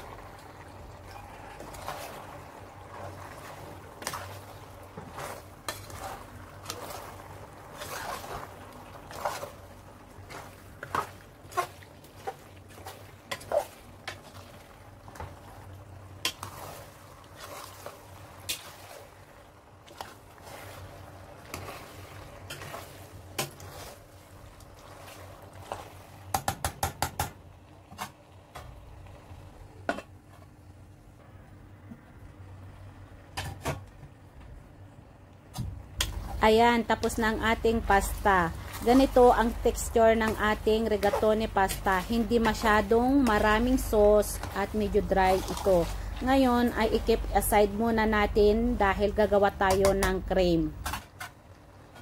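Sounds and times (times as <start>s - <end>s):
wet shuffling of pasta: 0.0s - 26.3s, 35.8s - 49.7s.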